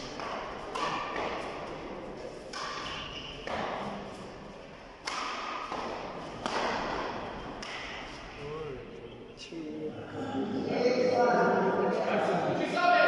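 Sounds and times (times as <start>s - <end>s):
racket hitting shuttlecock: 0.0s - 8.2s.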